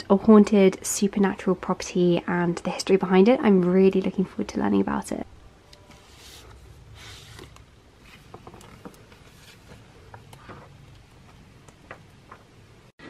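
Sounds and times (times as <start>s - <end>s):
book pages flipping: 5.8s - 12.6s.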